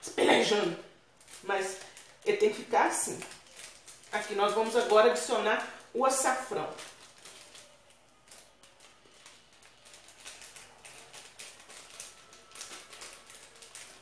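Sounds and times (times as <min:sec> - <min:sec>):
light clicks and rustling of packet: 0:01.1 - 0:14.0.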